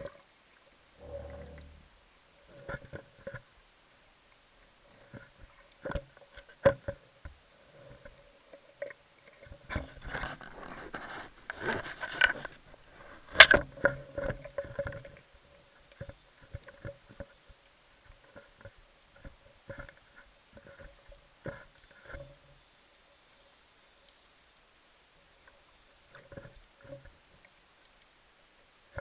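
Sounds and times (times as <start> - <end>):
crackling rustle: 0.0 - 29.0
faint steady hum: 0.0 - 29.0
sharp underwater clicks and knocks: 5.1 - 15.2.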